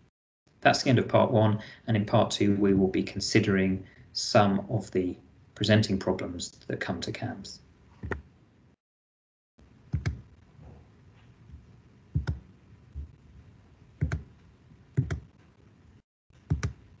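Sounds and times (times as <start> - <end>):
computer mouse clicks: 8.0 - 8.3, 9.9 - 10.2, 12.2 - 12.4, 14.0 - 14.3, 15.0 - 15.3, 16.4 - 16.8.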